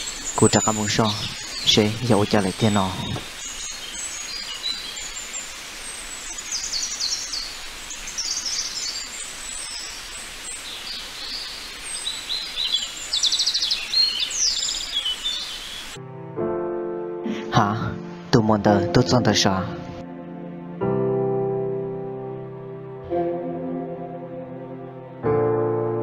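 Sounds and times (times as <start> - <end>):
birds chirping: 0.0 - 16.0
steady hiss: 0.0 - 16.0
bird trill: 6.3 - 16.0.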